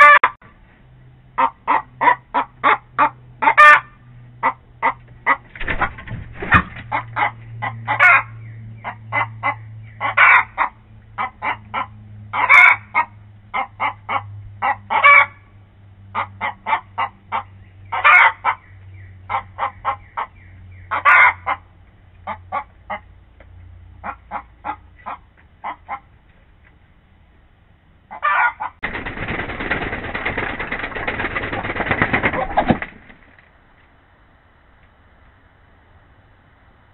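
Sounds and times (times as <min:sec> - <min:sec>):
hens clucking and squawking: 0:01.4 - 0:15.5, 0:16.1 - 0:23.2, 0:24.0 - 0:26.2, 0:28.1 - 0:33.1.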